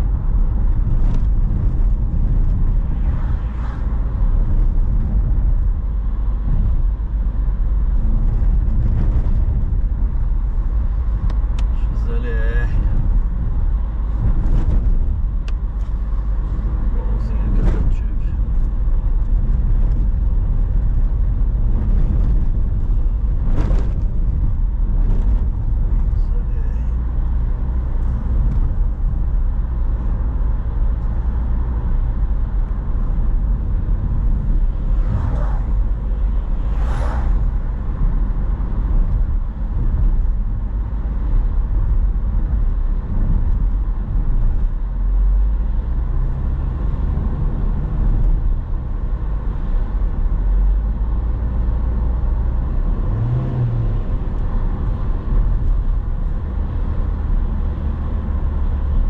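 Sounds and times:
car engine and tyre rumble: 0.0s - 59.0s
brief swishes: 36.6s - 37.5s.

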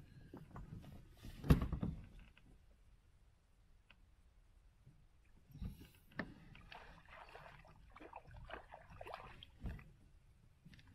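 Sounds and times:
water splashing and gurgling: 6.3s - 10.0s.

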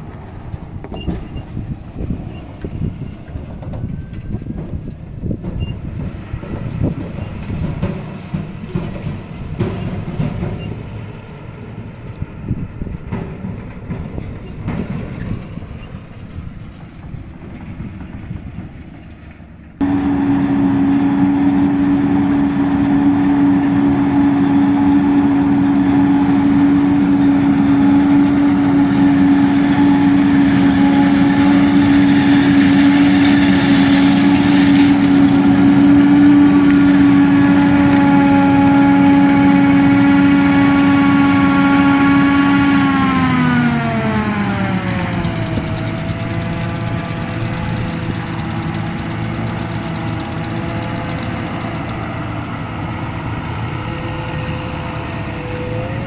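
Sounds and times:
forage harvester whine: 0.0s - 56.0s
tractor driving over stubble: 0.0s - 56.0s.

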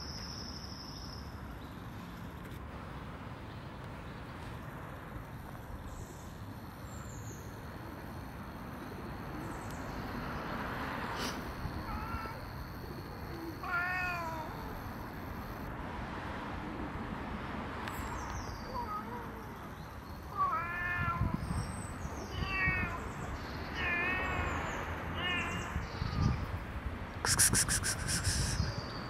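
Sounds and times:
cat meowing: 11.7s - 12.5s, 13.4s - 14.8s, 20.3s - 21.4s, 22.2s - 23.0s, 23.8s - 24.5s.

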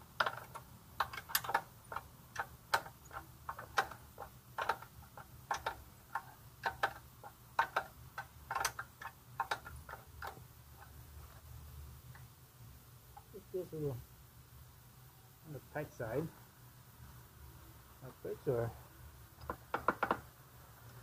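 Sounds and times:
wrench clicking on bolt: 0.2s - 10.9s.

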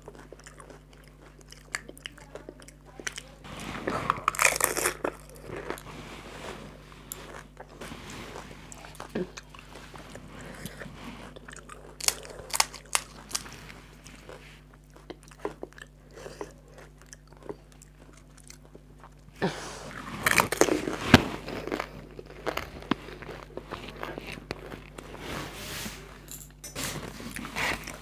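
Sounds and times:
chewing: 0.0s - 25.2s, 26.8s - 28.0s
crisp shells crunching: 4.2s - 5.8s, 11.7s - 13.6s, 20.0s - 25.0s.

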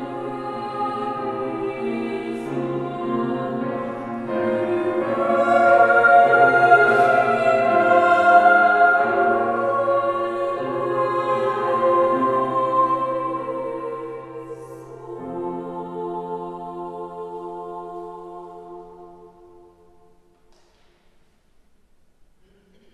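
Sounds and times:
piano accompaniment: 0.0s - 16.6s
choir singing: 0.0s - 20.3s.

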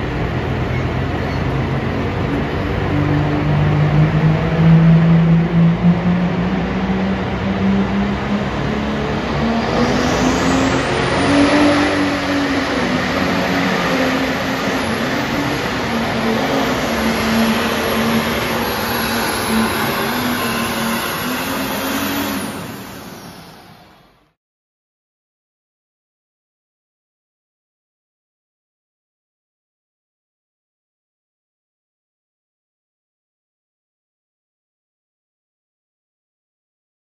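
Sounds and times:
tractor engine droning under load: 0.0s - 24.3s.

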